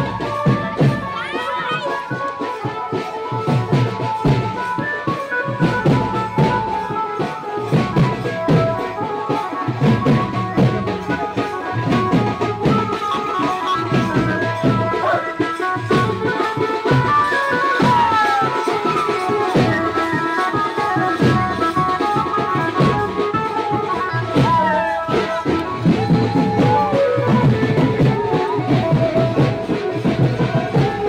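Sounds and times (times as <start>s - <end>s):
drums beating dance rhythm: 0.0s - 31.0s
band dance music: 22.6s - 28.6s.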